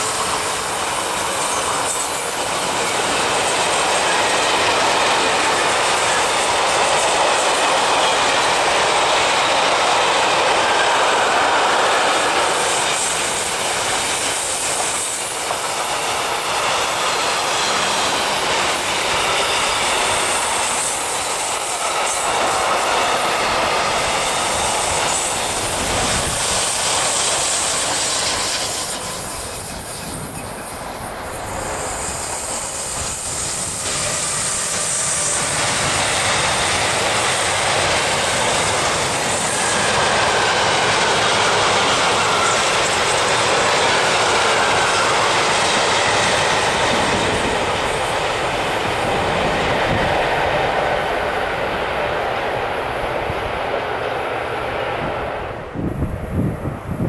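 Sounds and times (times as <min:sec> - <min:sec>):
wheel squeal: 0:00.0 - 0:08.8, 0:10.6 - 0:48.8.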